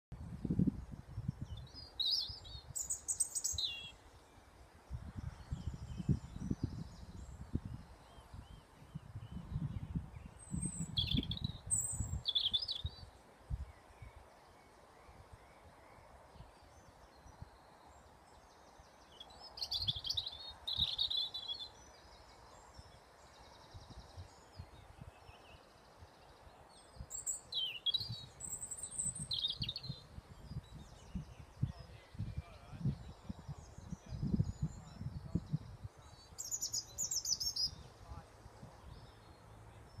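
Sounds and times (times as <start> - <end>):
wind buffeting on microphone: 0.1 - 3.7, 4.9 - 13.8, 19.7 - 21.2, 27.8 - 36.8
faint steady hiss: 0.4 - 9.3
songbirds warbling: 1.0 - 40.0.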